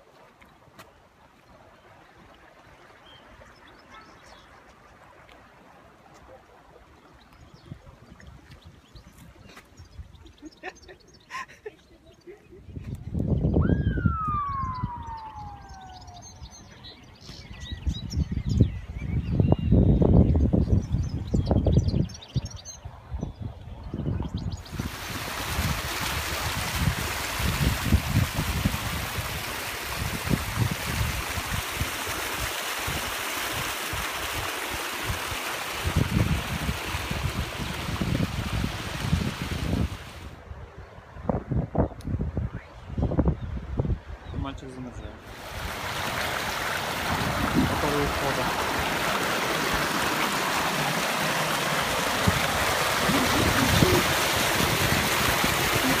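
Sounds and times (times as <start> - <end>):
water running in a channel: 0.0 - 11.6, 24.6 - 40.3, 45.3 - 56.0
wind buffeting microphone: 12.5 - 32.1, 35.1 - 44.5, 45.3 - 56.0.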